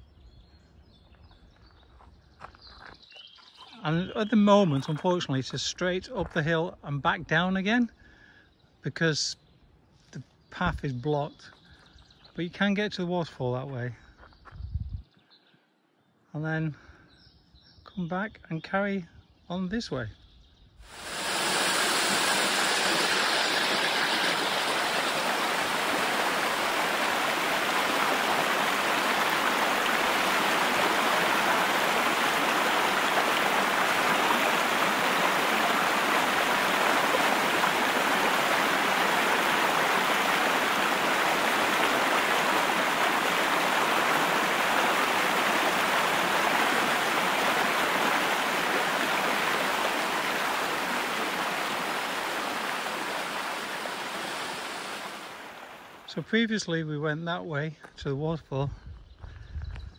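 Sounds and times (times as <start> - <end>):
waterfall rushing over rocks: 20.9 - 56.1.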